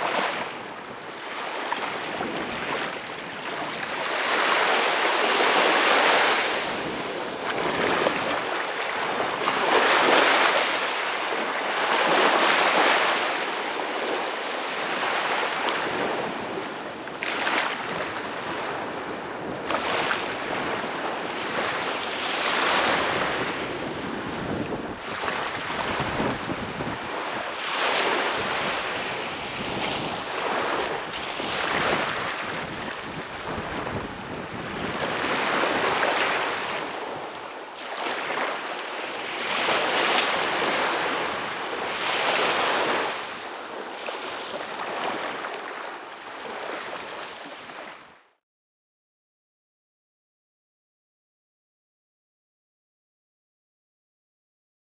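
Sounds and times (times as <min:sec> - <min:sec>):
small waves breaking on beach: 0:00.0 - 0:48.3.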